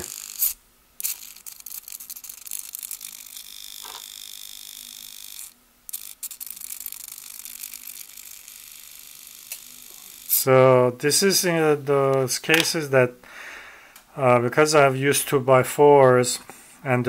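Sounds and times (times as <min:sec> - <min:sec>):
servo whirring and ticking: 0:00.0 - 0:10.5.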